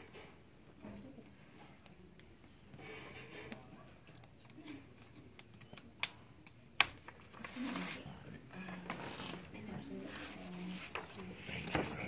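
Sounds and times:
plastic sheet rustling: 7.0s - 8.1s.

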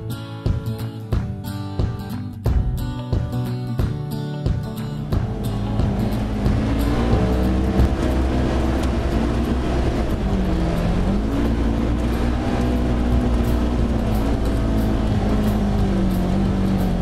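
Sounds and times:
off-road vehicle engine running: 0.0s - 17.0s
low rumble of tyres: 4.7s - 17.0s
wind: 4.8s - 17.0s.

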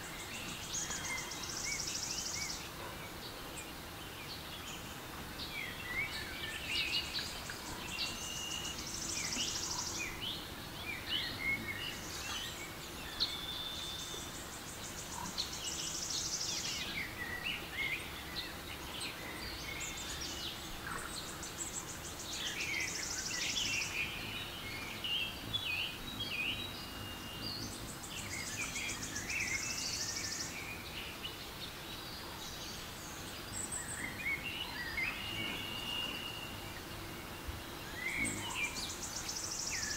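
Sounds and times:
soft steady background hiss: 0.0s - 39.9s
birds chirping and whistling: 33.5s - 39.9s.

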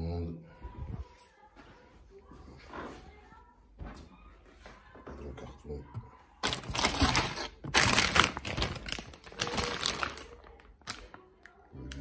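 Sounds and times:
plastic bag crinkling: 6.4s - 11.6s.

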